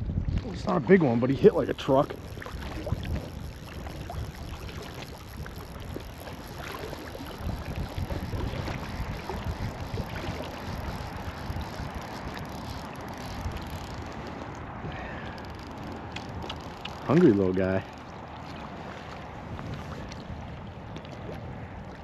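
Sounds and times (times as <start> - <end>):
wind buffeting microphone: 0.0 - 18.0
water lapping against float tube: 0.0 - 22.0.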